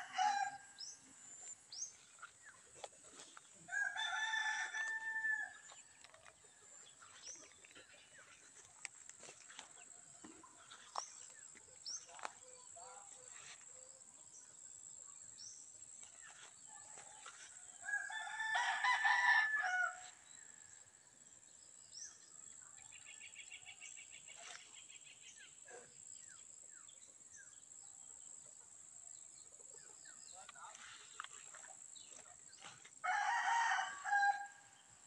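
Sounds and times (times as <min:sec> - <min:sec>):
rooster crowing: 0:00.0 - 0:00.8, 0:03.7 - 0:05.7, 0:17.8 - 0:20.2, 0:33.0 - 0:34.8.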